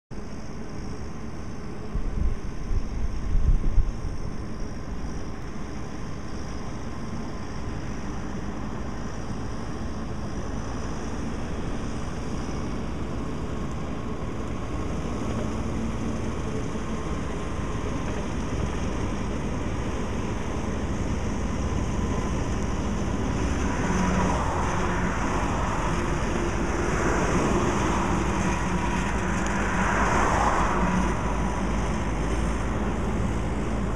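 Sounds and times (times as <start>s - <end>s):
passing highway traffic: 0.2s - 33.9s
rotary mower cutting grass: 6.8s - 33.9s
tractor diesel engine running: 8.5s - 33.9s.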